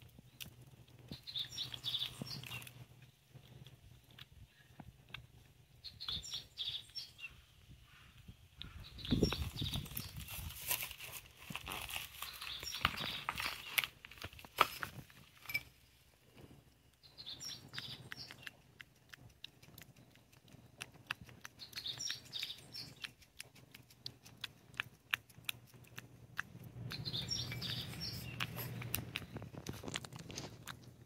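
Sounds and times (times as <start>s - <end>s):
cat licking and lapping: 0.0s - 6.4s, 16.2s - 31.0s
birds chirping: 1.1s - 2.8s, 5.8s - 10.3s, 11.9s - 13.9s, 17.0s - 18.6s, 21.6s - 23.2s, 26.8s - 29.4s.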